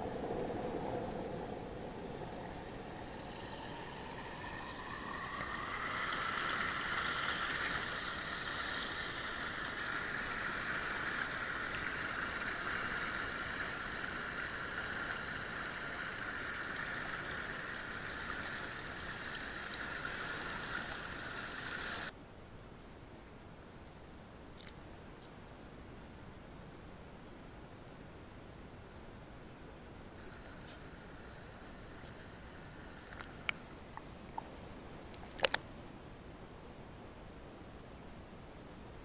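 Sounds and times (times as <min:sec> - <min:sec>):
creek rushing over stones: 0:02.2 - 0:22.1.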